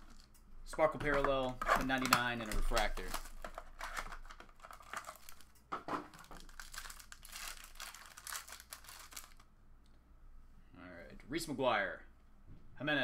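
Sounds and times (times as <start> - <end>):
plastic wrapping crackling: 0.0 - 0.4, 1.0 - 9.5.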